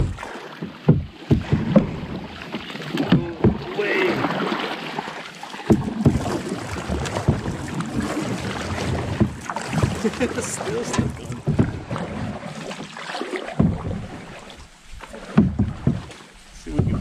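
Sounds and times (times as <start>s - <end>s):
sharp knocks: 0.0s - 2.2s, 2.9s - 3.8s, 5.6s - 7.8s, 13.5s - 14.1s, 15.3s - 17.0s
water splashing around a kayak: 0.0s - 17.0s.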